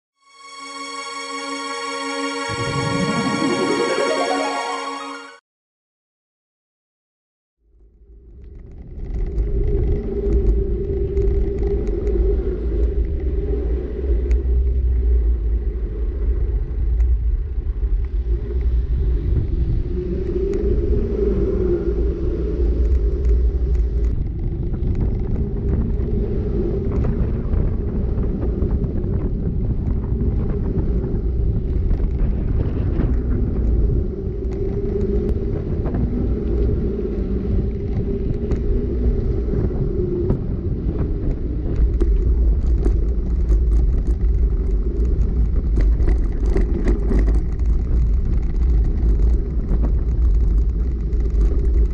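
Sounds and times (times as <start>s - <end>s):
wind rumbling on microphone: 7.7s - 51.9s
bike tyres rolling on asphalt: 8.2s - 51.9s
bike rattles: 41.8s - 51.9s.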